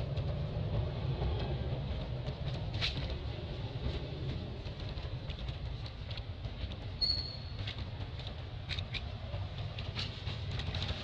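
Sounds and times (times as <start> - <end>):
steady low rumble: 0.0 - 11.0
short high squeak: 7.0 - 7.6.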